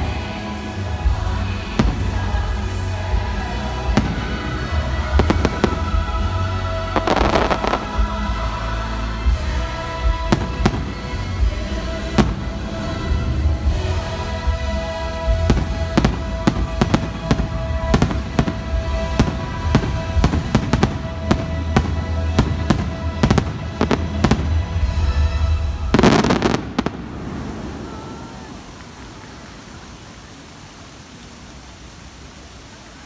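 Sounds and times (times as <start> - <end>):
music playing: 0.0 - 30.1
fireworks crackle: 0.0 - 33.0
fireworks bangs: 1.7 - 8.2, 15.2 - 30.0.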